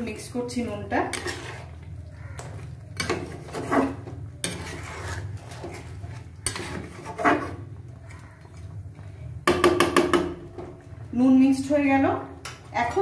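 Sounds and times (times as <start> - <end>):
metal spatula scraping a wok: 0.7 - 1.9, 3.0 - 7.7.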